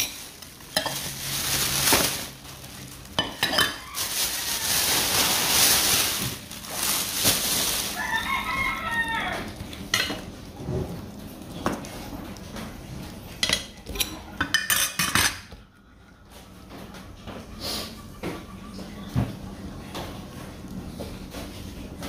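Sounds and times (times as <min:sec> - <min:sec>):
plastic bag rustling: 0:00.0 - 0:13.4
rooster crowing: 0:03.5 - 0:05.5, 0:07.8 - 0:09.6.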